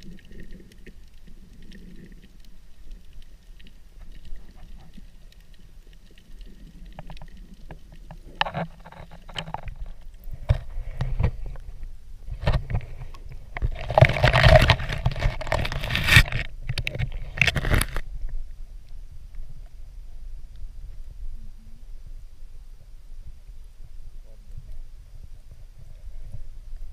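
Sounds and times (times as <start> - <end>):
muffled underwater water movement: 0.0 - 26.9
rush of underwater noise: 0.0 - 26.9
knocks and scrapes: 6.5 - 18.0.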